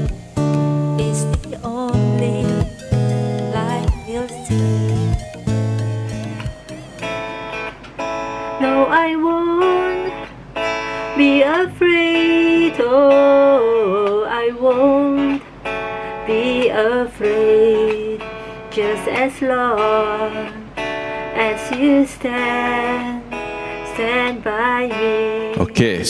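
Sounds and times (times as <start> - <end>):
guitar karaoke backing track: 0.0 - 26.0
woman singing: 0.8 - 5.4, 8.6 - 10.2, 11.1 - 15.4, 16.2 - 20.7, 21.3 - 25.6.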